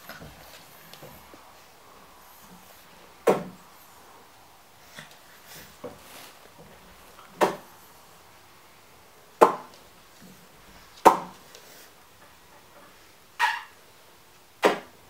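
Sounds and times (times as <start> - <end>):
puppy yapping: 13.4 - 13.8.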